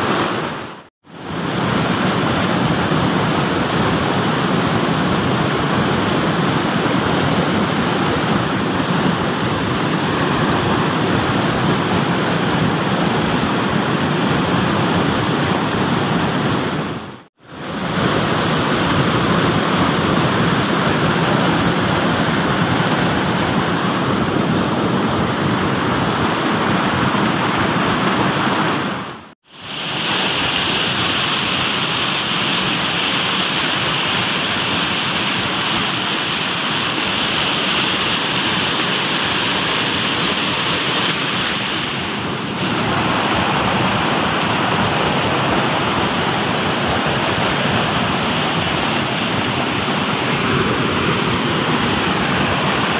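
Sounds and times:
river water rushing over rapids: 0:00.0 - 0:52.9.

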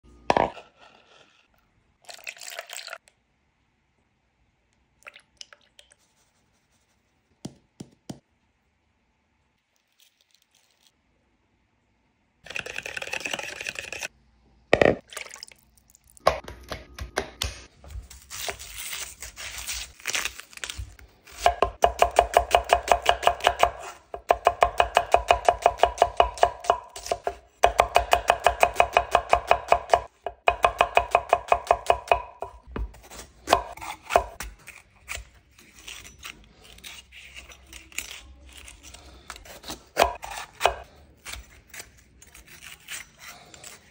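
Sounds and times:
knife chopping on wooden board: 0:21.4 - 0:34.5.

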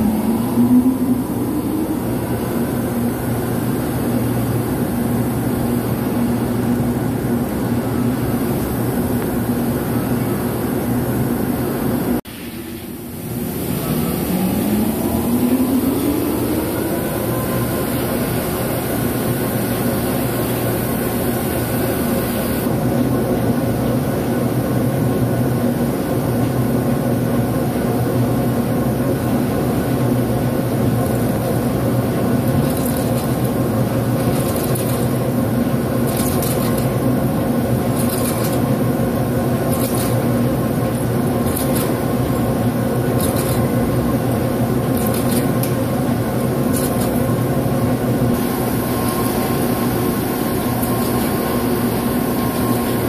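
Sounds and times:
lathe drive humming: 0:48.4 - 0:53.0.

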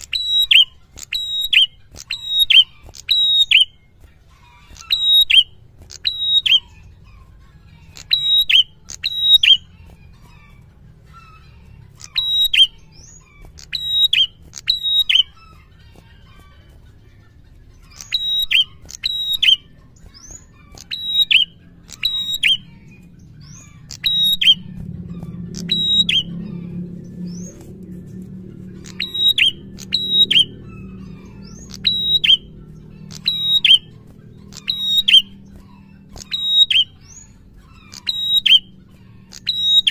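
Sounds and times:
low hum: 0:17.6 - 0:39.9
bird singing high notes: 0:17.8 - 0:39.9.

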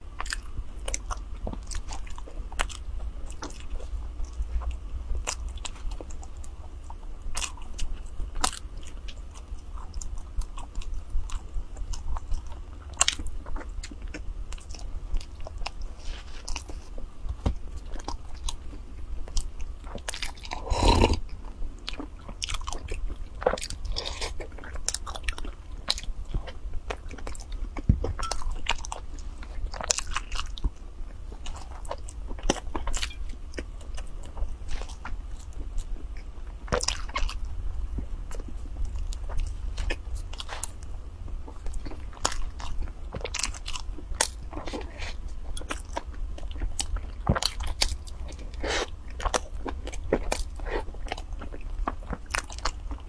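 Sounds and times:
low steady hum: 0:00.0 - 0:53.0
chewing bread mouth clicks: 0:17.3 - 0:53.0.

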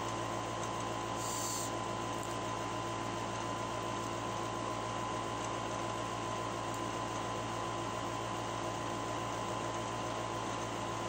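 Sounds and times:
background hum and hiss: 0:00.0 - 0:11.0
brief higher hiss: 0:01.2 - 0:01.7.

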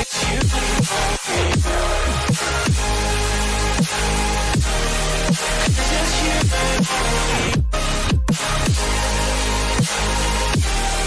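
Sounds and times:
electronic music: 0:00.0 - 0:11.0
deep kick drum: 0:04.6 - 0:04.8, 0:05.7 - 0:06.6.

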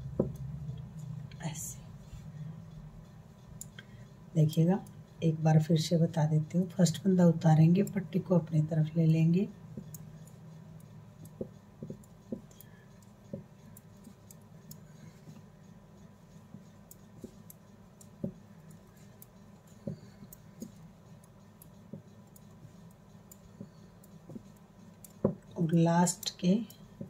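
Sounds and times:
faint steady hum: 0:00.0 - 0:27.0
metal knitting needles clicking: 0:06.3 - 0:27.0.

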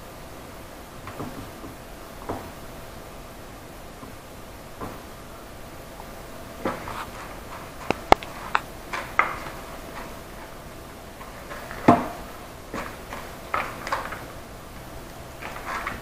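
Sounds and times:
crunching and rustling: 0:05.9 - 0:16.0
sharp clicks: 0:07.8 - 0:08.7.

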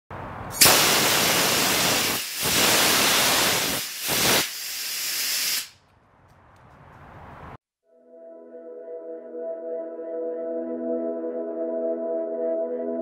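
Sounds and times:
gas thruster hissing: 0:00.5 - 0:05.8.

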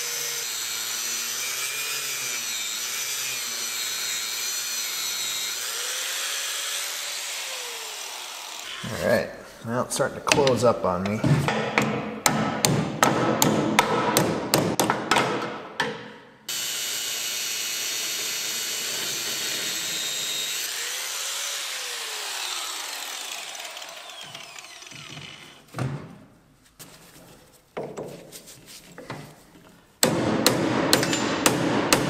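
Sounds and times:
tool whirring down: 0:00.0 - 0:09.0, 0:16.5 - 0:25.8.

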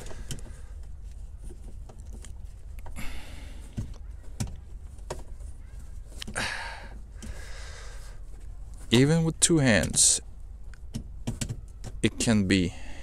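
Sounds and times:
rustling and scraping: 0:00.0 - 0:12.5
low steady hum: 0:00.0 - 0:13.0
plastic knocks and clicks: 0:10.8 - 0:12.0.

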